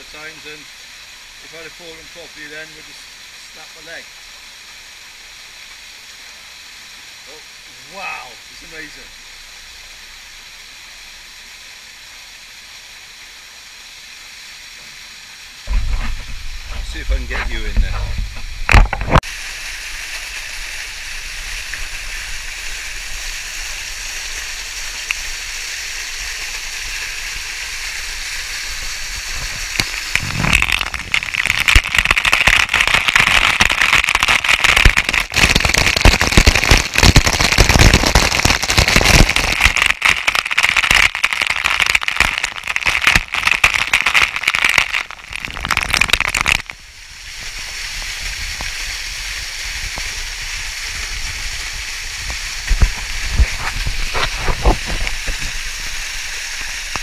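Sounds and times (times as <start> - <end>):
waterfall rushing: 15.2 - 35.3, 46.8 - 57.0
water pelting onto camera: 15.7 - 46.8, 47.4 - 57.0.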